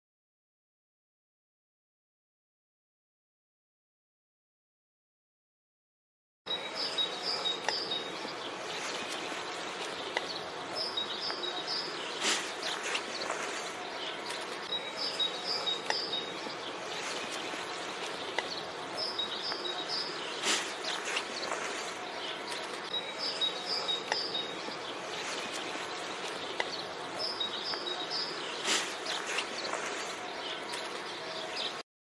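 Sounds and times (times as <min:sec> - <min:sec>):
birds chirping: 0:06.5 - 0:31.8.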